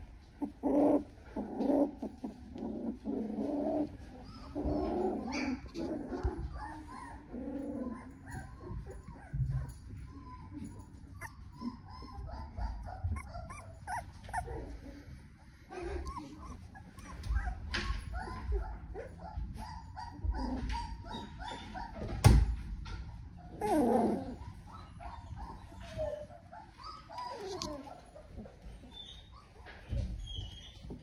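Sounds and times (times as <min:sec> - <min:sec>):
puppies whimpering and squeaking: 0:00.0 - 0:31.0.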